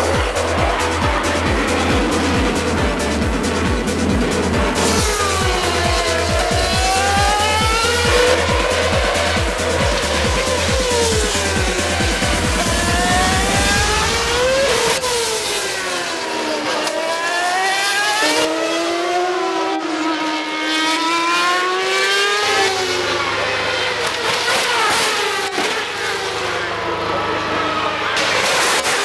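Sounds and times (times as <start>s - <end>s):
gear changes: 0.0s - 18.5s
racing car engines passing: 0.0s - 29.0s.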